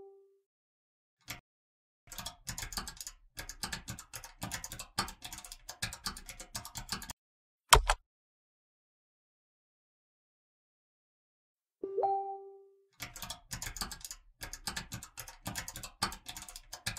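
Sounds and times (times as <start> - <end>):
computer keyboard key clicks: 2.1 - 7.1, 7.7 - 8.0, 13.0 - 16.9.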